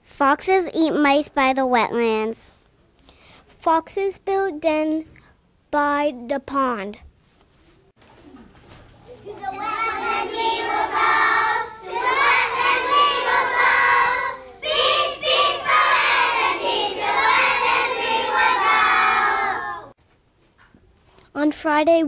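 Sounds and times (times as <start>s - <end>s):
young children singing: 9.2s - 19.9s.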